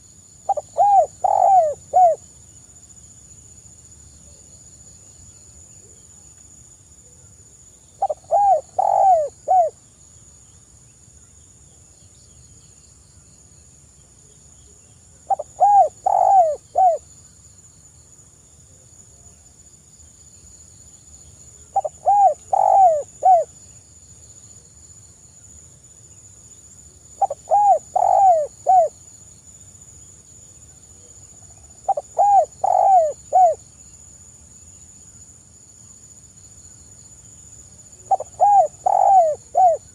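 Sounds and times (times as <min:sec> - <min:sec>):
dove cooing: 0:00.5 - 0:02.2, 0:08.0 - 0:09.8, 0:15.3 - 0:17.0, 0:21.7 - 0:23.5, 0:27.2 - 0:28.9, 0:31.8 - 0:33.6, 0:38.1 - 0:39.9.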